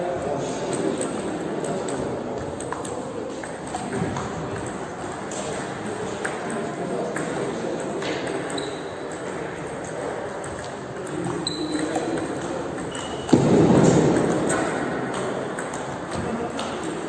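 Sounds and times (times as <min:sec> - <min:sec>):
table tennis ball clicking: 0:00.6 - 0:17.0
shoe squeaks: 0:08.5 - 0:09.0, 0:11.4 - 0:12.1, 0:12.9 - 0:13.4.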